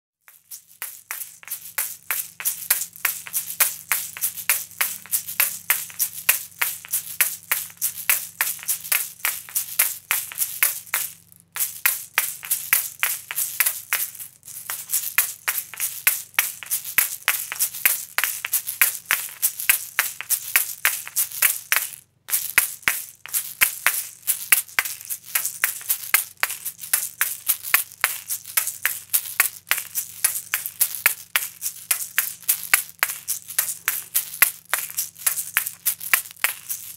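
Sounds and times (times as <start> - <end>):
shakers clacking and rattling: 0.2 - 36.9.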